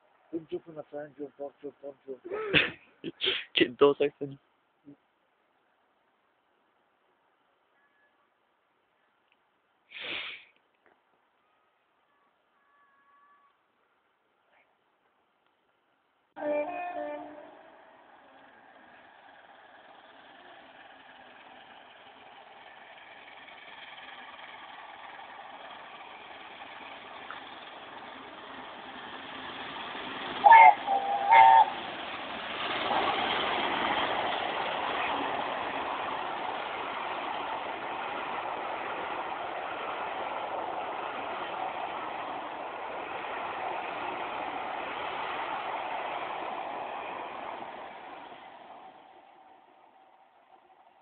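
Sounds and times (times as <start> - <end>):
steam whistle blasts: 16.4 - 17.6, 30.4 - 31.8
steam train passing: 16.4 - 51.0.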